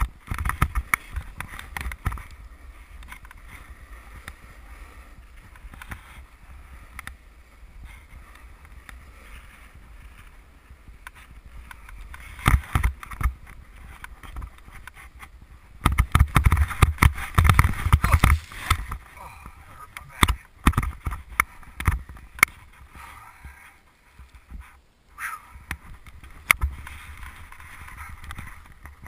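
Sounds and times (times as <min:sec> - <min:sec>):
snowboard scraping over snow: 0:00.0 - 0:19.9.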